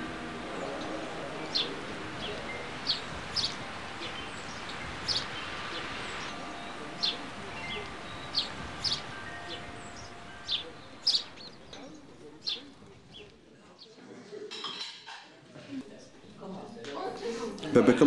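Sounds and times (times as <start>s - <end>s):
small birds chirping: 0.0s - 14.0s
steady outdoor hiss: 0.0s - 14.9s.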